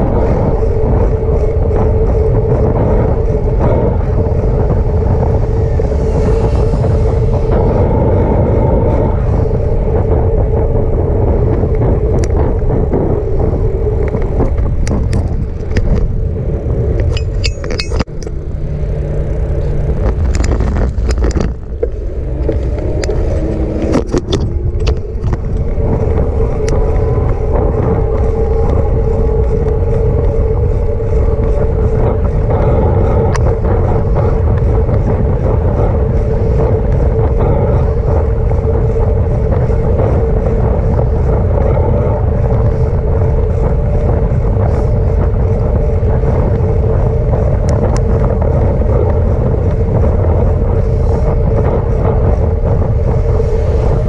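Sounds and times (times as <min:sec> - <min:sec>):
electric bicycle motor hum: 0:00.0 - 0:54.0
wind rumble on microphone: 0:00.0 - 0:54.0
clicks and rattles: 0:17.0 - 0:18.4.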